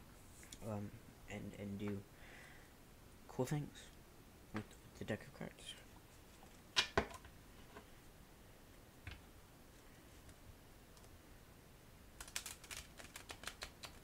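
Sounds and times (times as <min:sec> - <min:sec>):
cards riffle-shuffling: 0:12.2 - 0:14.0.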